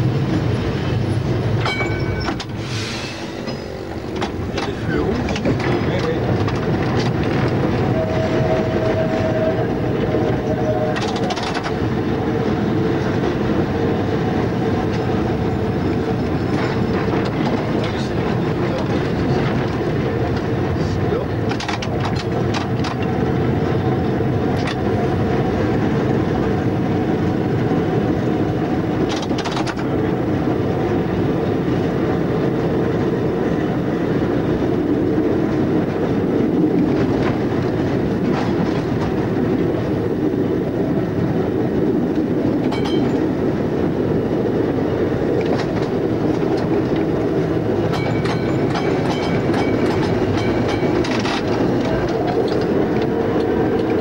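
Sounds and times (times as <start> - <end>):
tram wheels rumbling on rail: 0.0 - 54.0
clacks at rail joints: 0.3 - 2.6, 3.4 - 8.9, 9.9 - 23.8, 24.4 - 26.8, 27.7 - 40.1, 42.1 - 43.6, 44.5 - 54.0.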